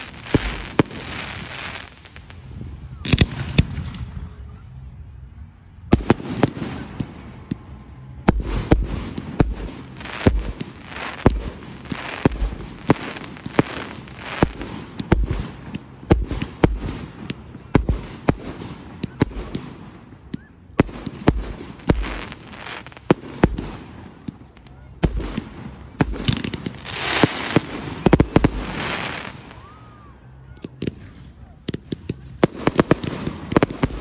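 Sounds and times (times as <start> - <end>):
fireworks bangs: 0.0 - 2.4, 8.3 - 29.7, 31.7 - 34.0
fireworks crackling: 0.0 - 2.5, 8.3 - 20.0, 20.8 - 29.8, 30.6 - 34.0.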